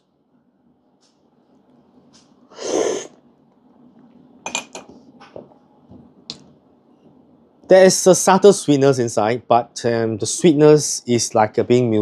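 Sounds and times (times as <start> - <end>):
person slurping coffee: 2.6 - 3.2.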